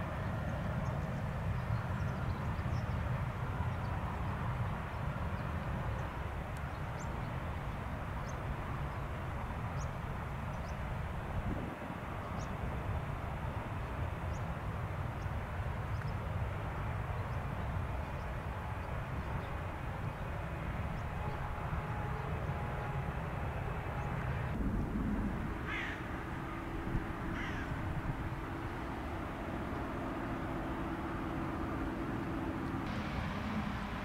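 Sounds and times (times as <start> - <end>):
steady low rumble: 0.0 - 34.0
crow cawing: 25.7 - 26.1, 27.3 - 27.8.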